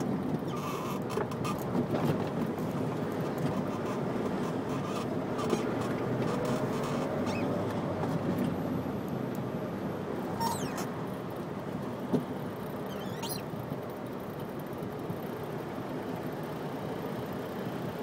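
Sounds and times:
car interior road noise: 0.0s - 18.0s
faint ticks and squeaks: 0.5s - 1.7s, 3.4s - 7.8s, 10.3s - 10.9s, 12.6s - 13.5s.

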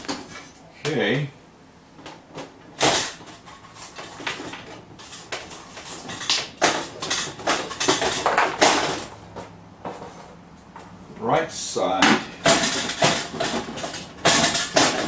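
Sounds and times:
popcorn popper rattling: 12.4s - 15.0s.

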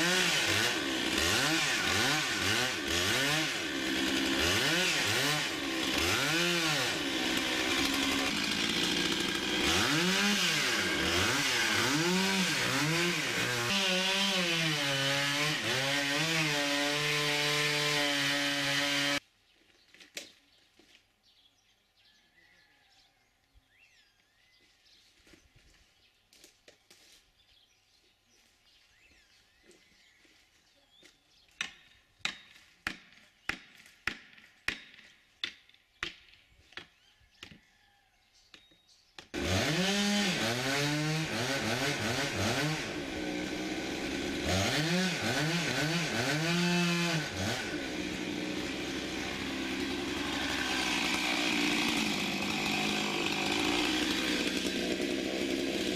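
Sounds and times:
chainsaw revving: 0.0s - 19.2s, 39.3s - 55.9s.

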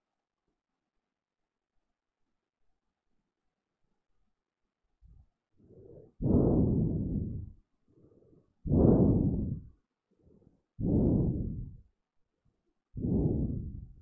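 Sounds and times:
faint inhale: 5.6s - 11.9s, 13.0s - 14.0s
muffled exhales into microphone: 5.6s - 11.9s, 13.0s - 14.0s.

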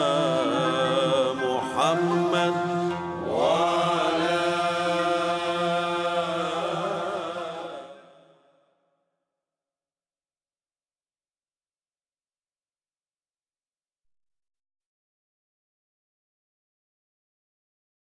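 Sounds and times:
voice chanting melismatic phrases: 0.0s - 8.2s.

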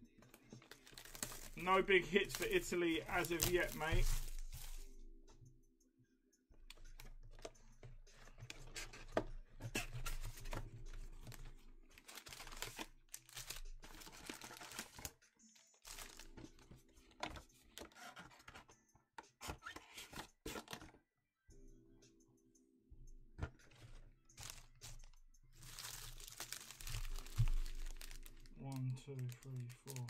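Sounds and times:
foil packs crinkling: 0.6s - 4.8s, 12.0s - 15.1s, 15.8s - 16.4s, 24.4s - 25.0s, 25.6s - 30.0s.

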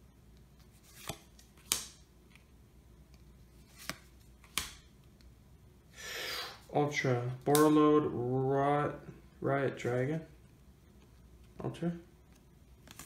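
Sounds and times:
trading cards snapping: 0.8s - 2.1s, 3.7s - 4.9s, 7.4s - 7.8s, 12.8s - 13.0s.

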